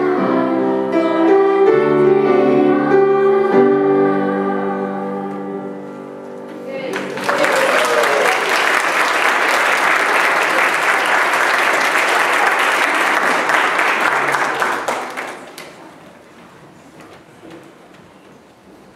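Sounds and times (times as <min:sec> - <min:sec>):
congregation applauding: 0:06.8 - 0:16.0.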